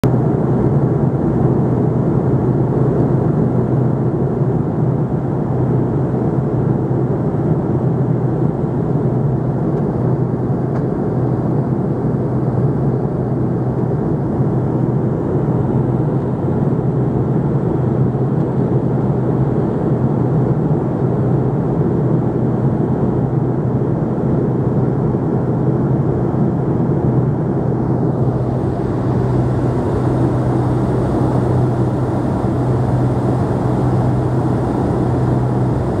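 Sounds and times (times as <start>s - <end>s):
low engine hum: 0.0s - 36.0s
rushing air noise: 27.8s - 36.0s.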